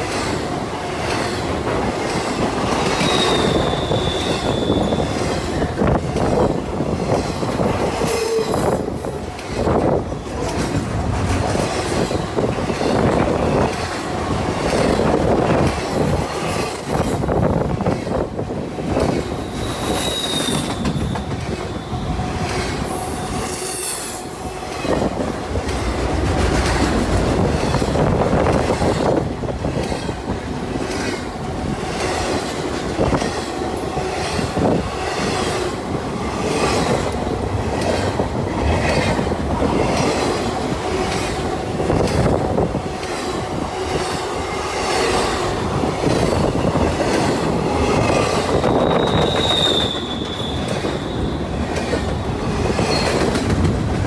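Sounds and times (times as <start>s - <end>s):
freight train wheels clattering: 0.0s - 54.0s
high-pitched wheel squeals: 3.0s - 5.4s, 19.3s - 25.0s, 48.5s - 51.7s.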